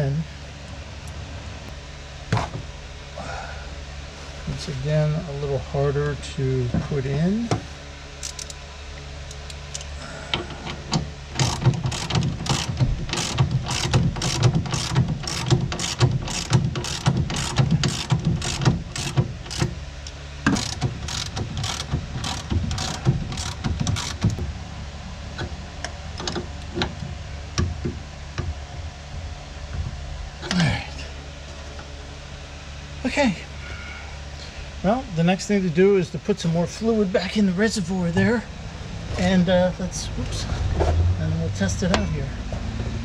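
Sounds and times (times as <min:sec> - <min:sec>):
ratchet wrench clicking: 0:08.2 - 0:08.6, 0:11.4 - 0:24.4.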